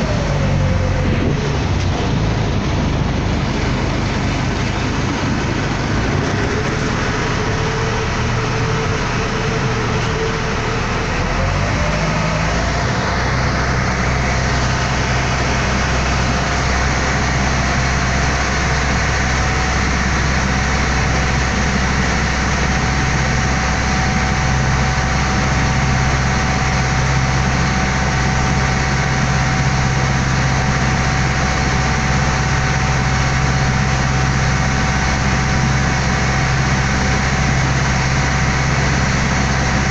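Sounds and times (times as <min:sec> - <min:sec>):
boat engine running: 0:00.0 - 0:39.9
rushing water: 0:00.0 - 0:39.9
wind: 0:00.0 - 0:39.9.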